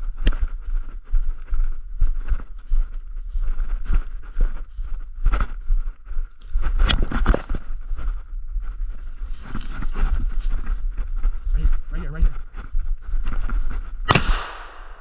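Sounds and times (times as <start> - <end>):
footsteps crunching through snow: 0.0 - 15.0
sharp crack: 14.1 - 15.0.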